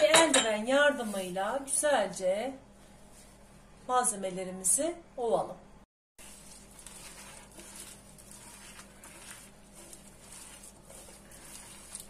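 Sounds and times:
hand rustling crumbly mix: 6.2s - 12.0s.

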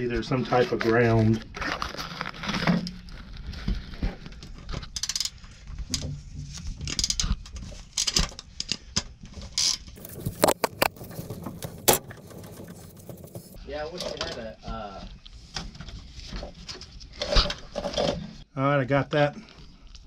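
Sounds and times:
wires rustling: 10.0s - 14.4s.

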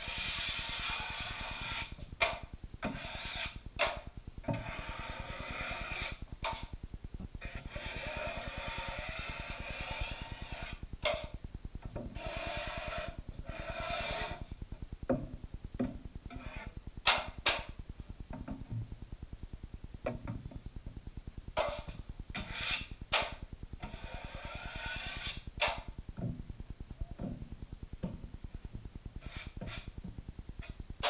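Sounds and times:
taping knife scraping joint compound: 0.0s - 6.8s, 7.4s - 14.5s, 16.3s - 17.7s, 21.6s - 25.9s, 29.2s - 30.0s.

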